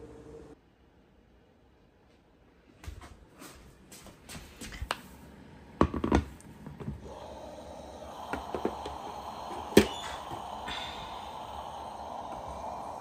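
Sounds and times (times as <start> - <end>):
steamer hissing: 7.0 - 13.0.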